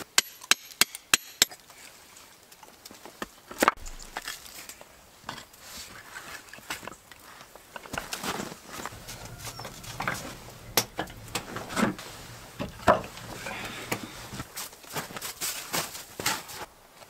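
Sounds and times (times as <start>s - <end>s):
stones knocking and scraping: 3.1s - 12.0s.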